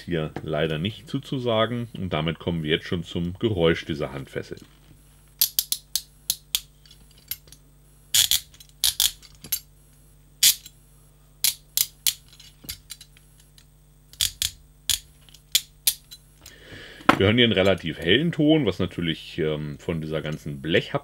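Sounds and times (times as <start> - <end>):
handcuff ratcheting clicks: 5.4 - 7.6, 8.2 - 9.6, 11.4 - 16.2.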